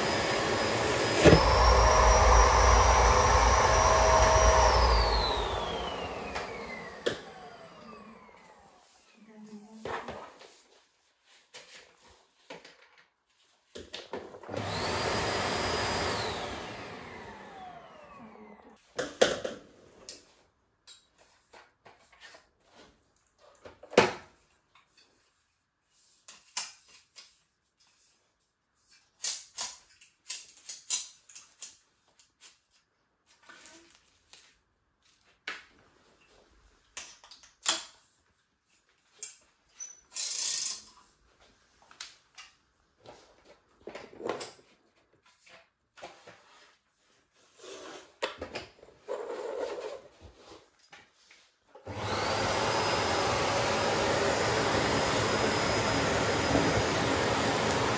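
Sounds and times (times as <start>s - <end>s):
vacuum cleaner motor running: 0.0s - 8.8s, 14.4s - 18.7s, 51.8s - 57.9s.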